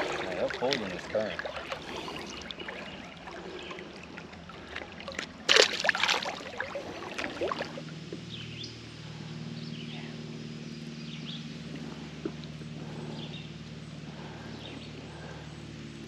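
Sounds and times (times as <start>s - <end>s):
water splash and slosh: 0.0s - 8.0s
steady low hum: 0.0s - 16.0s.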